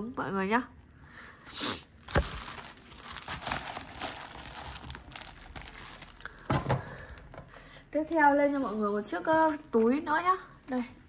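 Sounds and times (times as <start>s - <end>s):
crinkly wrapping rustling: 2.0s - 7.2s, 8.2s - 10.5s.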